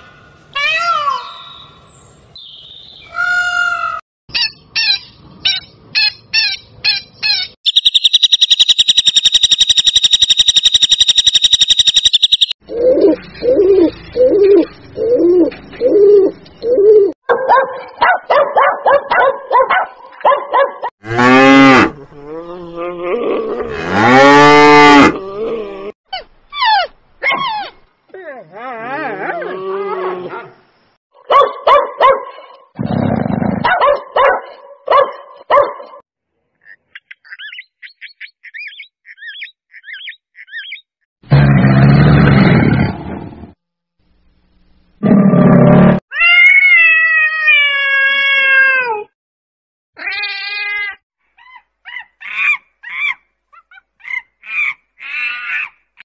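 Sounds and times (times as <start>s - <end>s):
high buzzing tone: 7.7s - 12.6s
quick chattering calls: 7.7s - 12.6s.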